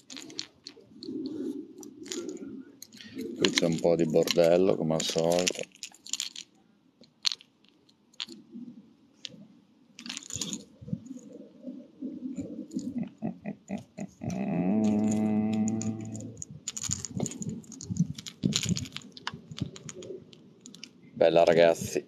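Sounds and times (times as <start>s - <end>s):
low drawn-out voice-like sound: 12.3s - 16.6s.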